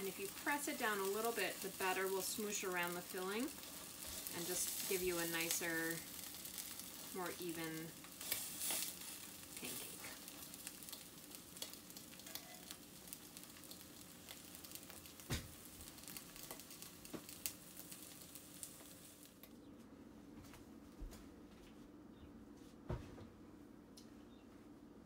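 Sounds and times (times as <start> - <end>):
pancakes sizzling in oil: 0.0 - 19.4.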